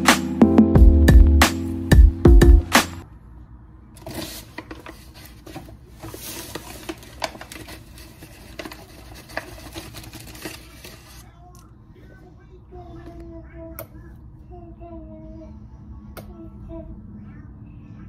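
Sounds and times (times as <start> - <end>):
drum-backed music: 0.0 - 3.0.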